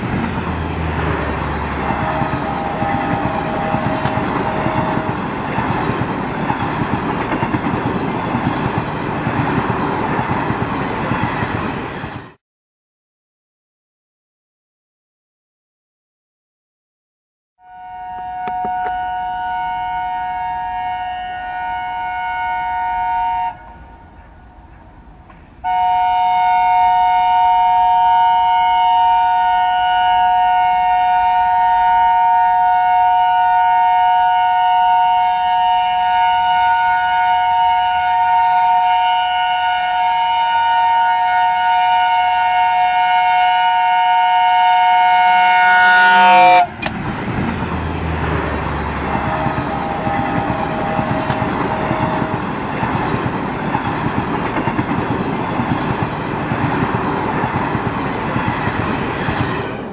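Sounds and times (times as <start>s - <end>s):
train rushing past: 0.0s - 12.4s, 18.0s - 59.9s
locomotive two-tone horn: 1.0s - 5.3s, 17.6s - 24.6s, 25.6s - 46.9s, 48.8s - 52.4s.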